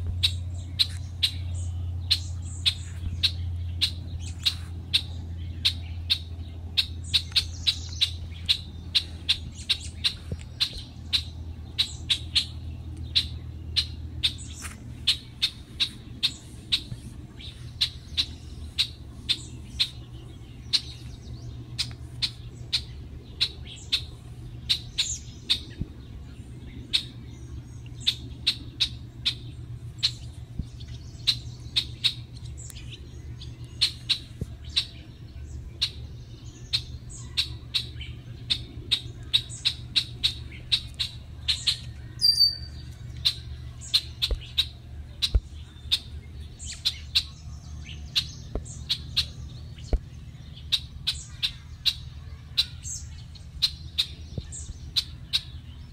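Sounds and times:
goslings peeping: 0.0s - 26.1s
low steady background rumble: 0.0s - 55.9s.

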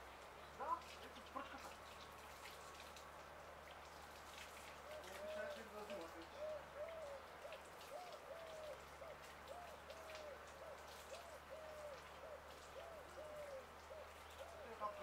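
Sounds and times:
bird hooting: 6.3s - 14.7s.

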